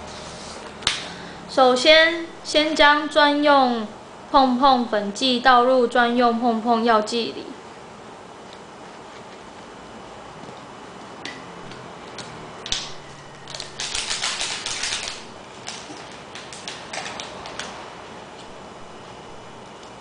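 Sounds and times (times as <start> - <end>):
foil sachet crinkling: 13.4 - 17.7.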